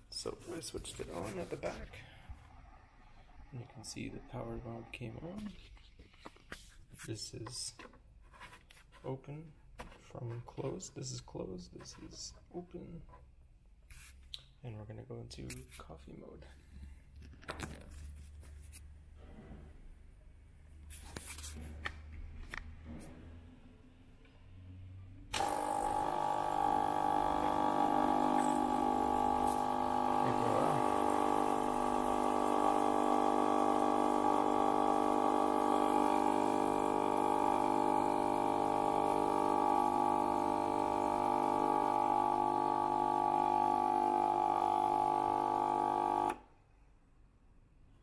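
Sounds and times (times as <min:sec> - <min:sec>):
espresso machine pump running: 0:25.3 - 0:46.4.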